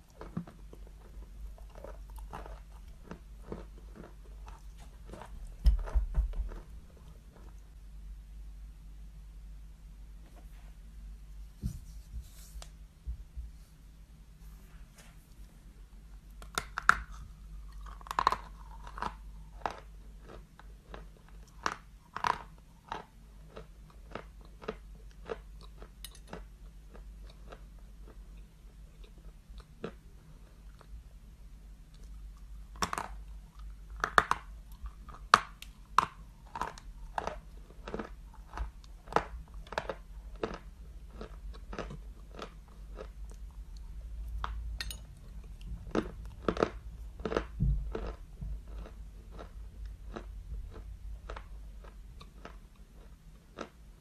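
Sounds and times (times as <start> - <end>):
chewing chalk crunches: 0.0 - 7.6, 16.4 - 28.2, 32.8 - 44.6, 45.2 - 53.8.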